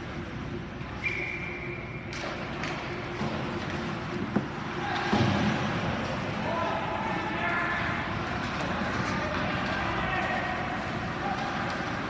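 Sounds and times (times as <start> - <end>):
whistle blast: 1.0 - 2.2
hockey sticks and puck clacking: 2.1 - 6.4, 8.1 - 12.0
arena crowd din: 4.7 - 12.0.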